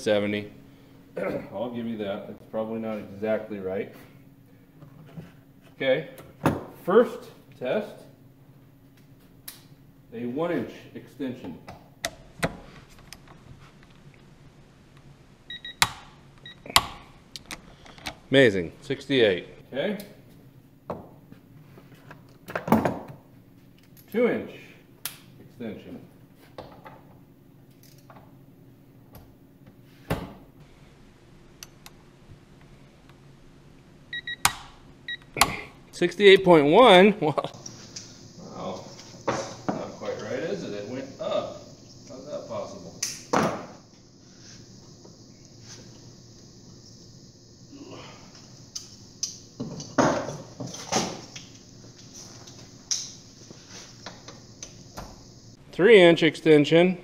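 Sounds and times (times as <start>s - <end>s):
short electronic beeps: 34.1s - 34.5s.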